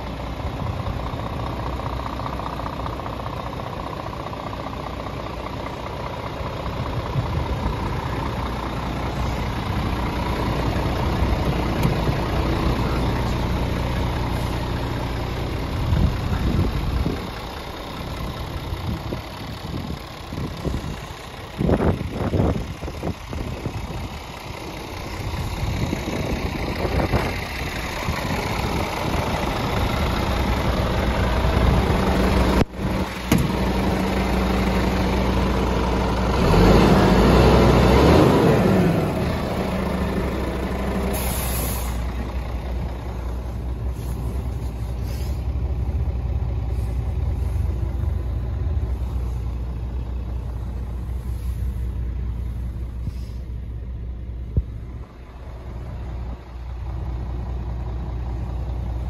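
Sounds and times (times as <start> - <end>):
diesel truck engine idling: 0.0 - 59.0
short high hiss: 41.1 - 42.0.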